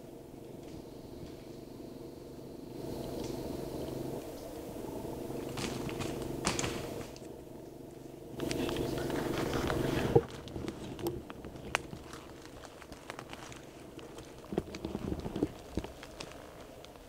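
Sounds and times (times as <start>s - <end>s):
brush rustling: 2.8s - 17.0s
sticks snapping underfoot: 5.5s - 7.3s, 8.4s - 17.0s.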